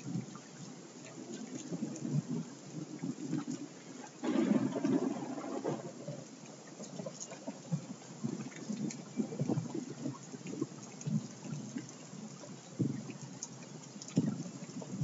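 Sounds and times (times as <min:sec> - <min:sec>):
crackling electronic noise: 0:00.0 - 0:15.0.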